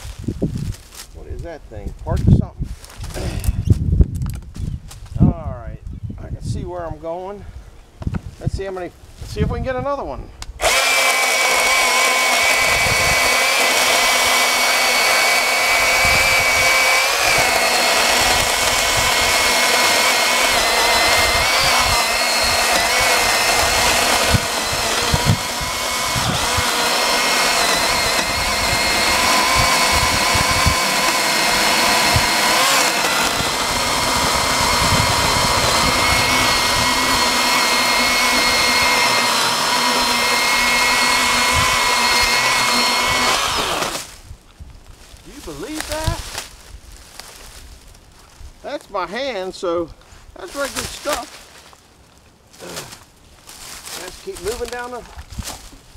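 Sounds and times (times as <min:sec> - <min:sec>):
electric chainsaw cutting log: 0:10.5 - 0:44.2, 0:45.6 - 0:46.4, 0:50.5 - 0:51.3, 0:53.9 - 0:55.0.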